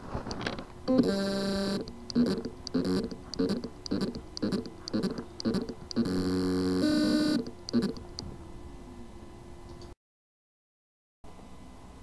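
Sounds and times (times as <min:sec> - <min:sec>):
hard drive motor buzzing: 0:00.9 - 0:08.3.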